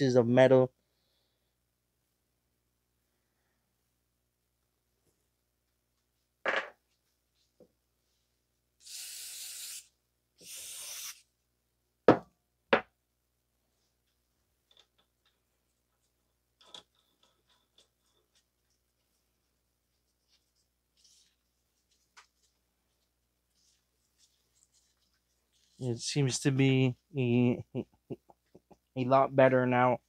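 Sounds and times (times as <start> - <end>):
aerosol can spraying: 8.8 - 11.3.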